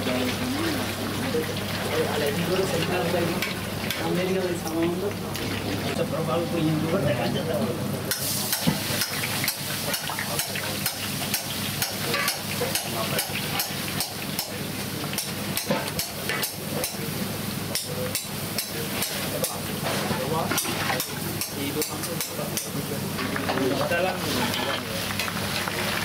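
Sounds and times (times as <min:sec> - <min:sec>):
batter sizzling in hot oil: 0:08.0 - 0:26.0.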